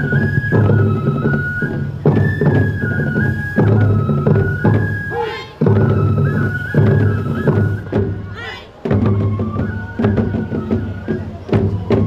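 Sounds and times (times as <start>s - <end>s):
flute melody: 0.0s - 12.0s
person calling: 5.1s - 5.7s.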